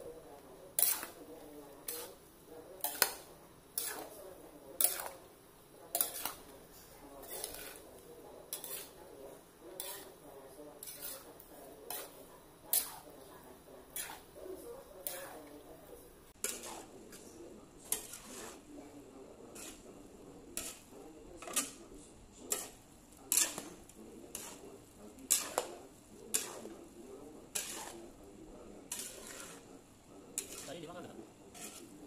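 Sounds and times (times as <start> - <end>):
metal spatula clanking on wok: 5.9 - 6.5, 22.5 - 23.7, 27.5 - 28.0.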